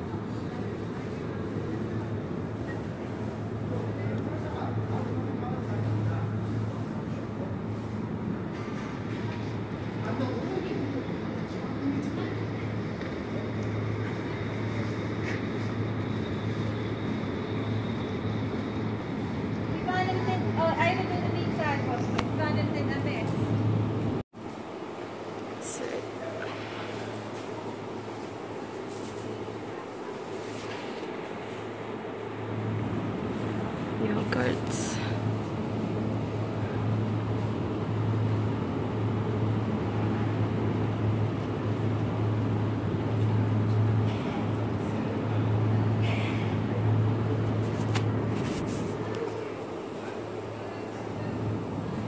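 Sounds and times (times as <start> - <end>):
constant low hum: 0.0 - 52.0
store background noise: 0.0 - 52.0.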